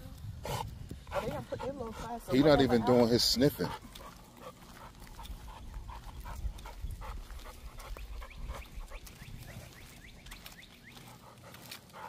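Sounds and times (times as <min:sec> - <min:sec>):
dog panting: 0:00.4 - 0:09.9, 0:10.9 - 0:12.0.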